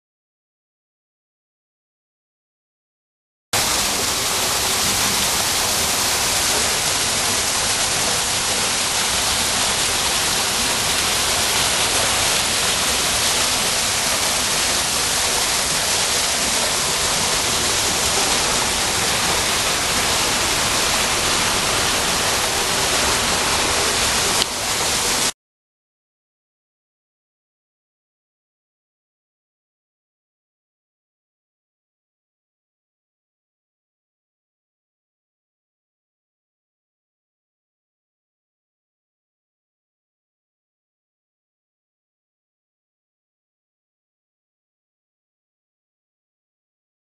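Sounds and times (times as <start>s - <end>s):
waterfall rushing: 3.6s - 25.3s.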